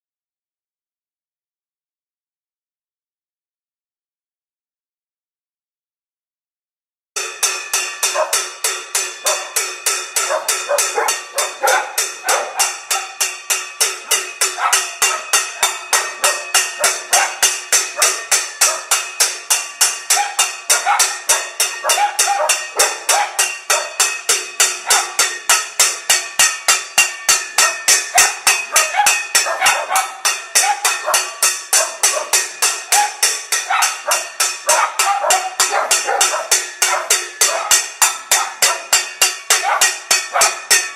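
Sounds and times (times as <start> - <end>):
metal pan beaten with utensil: 7.2 - 40.9.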